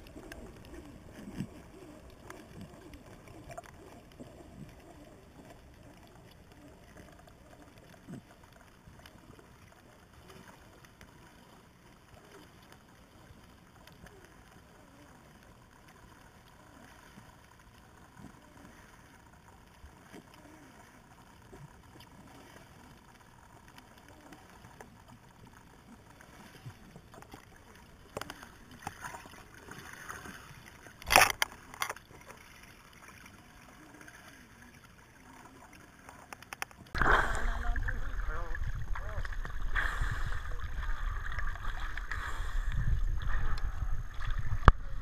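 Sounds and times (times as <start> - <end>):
faint ticks and crackle: 0.0 - 45.0
underwater hiss: 37.0 - 37.8, 39.6 - 41.0.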